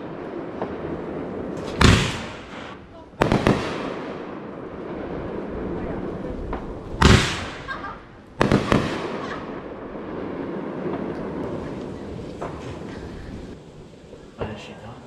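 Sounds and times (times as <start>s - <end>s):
firework boom: 0.0s - 14.6s
firework cracks: 0.0s - 15.0s.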